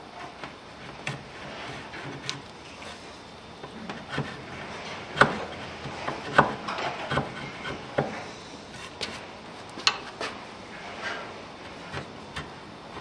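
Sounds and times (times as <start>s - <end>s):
chisel scraping wood: 1.0s - 3.0s, 3.7s - 8.2s.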